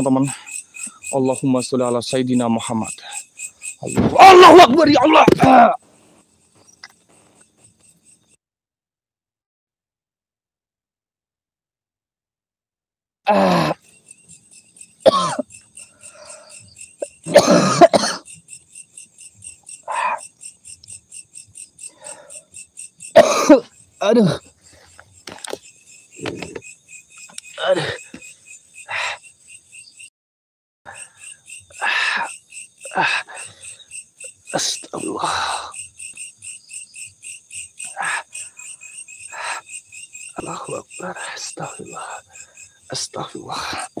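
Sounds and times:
close-up noises: 0:00.0 - 0:08.0, 0:21.8 - 0:28.3, 0:30.9 - 0:35.9, 0:40.3 - 0:44.0
night insects chirping: 0:00.0 - 0:08.4, 0:13.3 - 0:30.1, 0:30.9 - 0:44.0
person coughing: 0:15.0 - 0:15.4, 0:17.2 - 0:18.2, 0:23.2 - 0:24.4.

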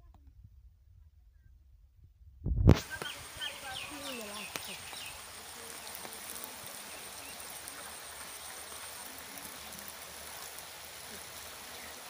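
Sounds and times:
rainwater rushing over concrete: 0:02.7 - 0:12.0.

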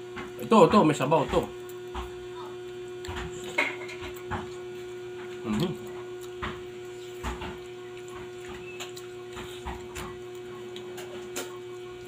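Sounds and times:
electrical hum: 0:00.0 - 0:12.0
soft clicks and eating smacks: 0:05.2 - 0:11.6.

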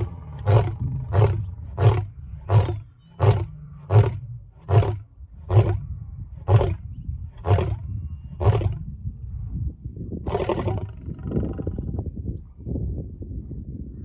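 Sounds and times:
lion grunting calls: 0:00.0 - 0:05.8
lion roaring: 0:00.0 - 0:05.8.

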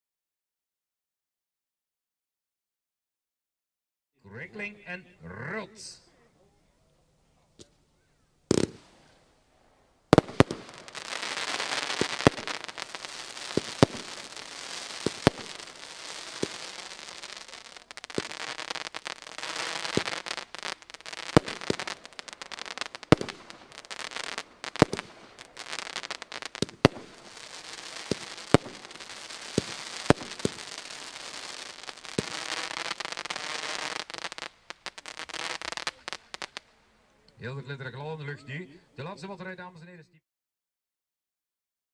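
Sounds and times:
firework burst: 0:08.5 - 0:09.2, 0:10.1 - 0:36.7
firework bangs: 0:08.5 - 0:36.8
firework crackling hiss: 0:08.5 - 0:36.9.

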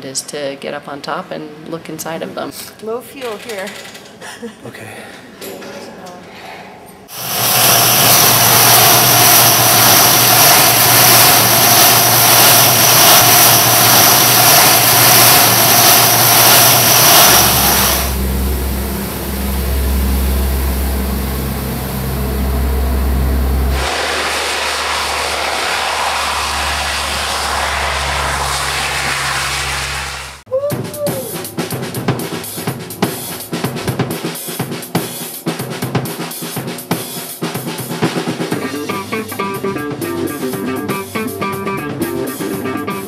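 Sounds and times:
turboprop engines droning: 0:07.1 - 0:30.4.

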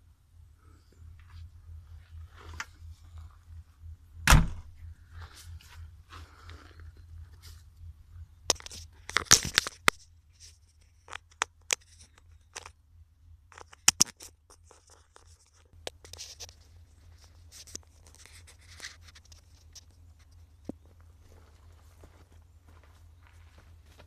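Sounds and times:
steady low rumble: 0:00.0 - 0:24.0
sharp clicks and scrapes: 0:08.5 - 0:12.8, 0:13.5 - 0:20.9.

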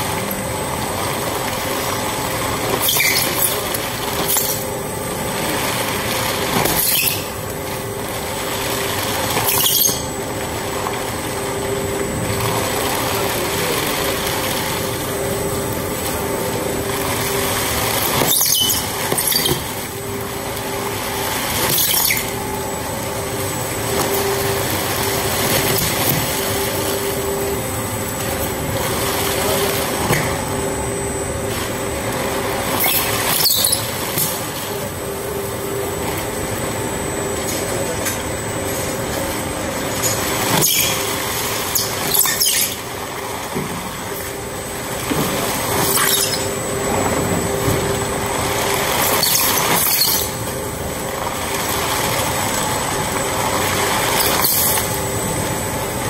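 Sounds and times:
shredder machine hum: 0:00.0 - 0:56.0
plastic film tearing and squealing: 0:01.6 - 0:07.6, 0:08.8 - 0:10.2, 0:12.4 - 0:27.9, 0:31.5 - 0:35.1, 0:40.0 - 0:43.4, 0:45.4 - 0:46.9, 0:47.9 - 0:55.6.

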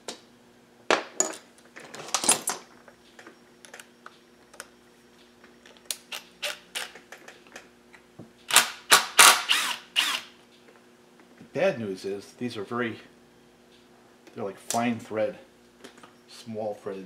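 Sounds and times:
metal tools clattering on workbench: 0:01.2 - 0:02.7.

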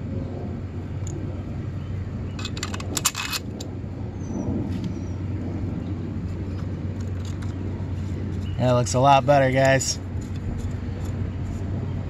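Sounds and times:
steady low hum: 0:00.0 - 0:12.0
small metal hardware clinking: 0:02.4 - 0:03.6.

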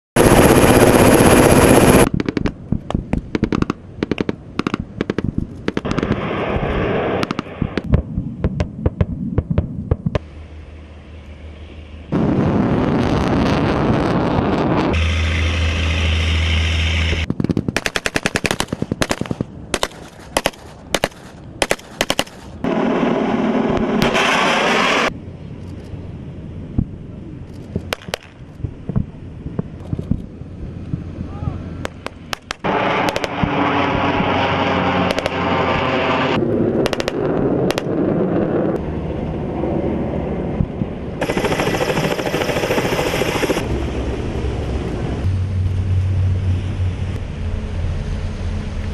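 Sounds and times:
low hum: 0:00.2 - 0:17.4, 0:22.5 - 0:48.9
loud steady noise: 0:09.9 - 0:19.3, 0:40.6 - 0:48.9
automatic gunfire: 0:17.4 - 0:22.4, 0:41.2 - 0:43.6.

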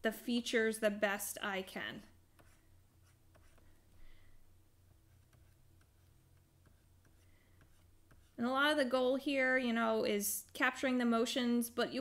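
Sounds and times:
low steady hum: 0:00.0 - 0:12.0
stylus ticking and scratching: 0:02.3 - 0:04.0, 0:04.8 - 0:08.4.

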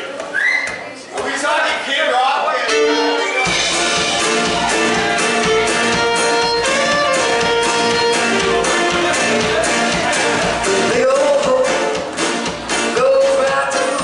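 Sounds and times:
fiddle: 0:02.6 - 0:10.2
acoustic guitar: 0:02.6 - 0:14.0
drums: 0:03.3 - 0:14.0.

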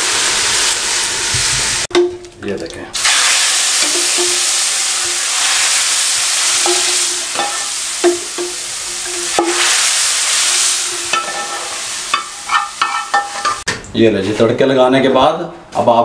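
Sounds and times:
hot oil sizzling: 0:00.0 - 0:13.7
metal ladle clinking on pots: 0:03.8 - 0:05.2, 0:06.6 - 0:09.7, 0:11.1 - 0:13.7.

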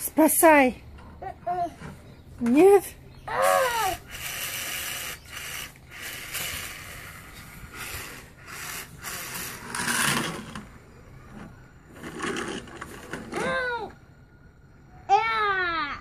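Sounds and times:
rustling and scraping: 0:03.9 - 0:13.6.

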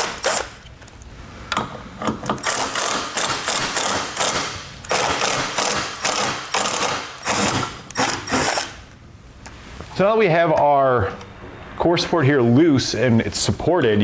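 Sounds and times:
impact driver hammering: 0:02.3 - 0:08.7.

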